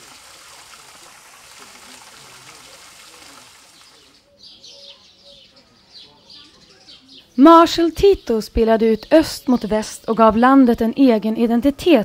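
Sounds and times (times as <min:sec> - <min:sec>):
fountain water splashing: 0:00.0 - 0:04.2
small birds chirping: 0:01.4 - 0:11.8.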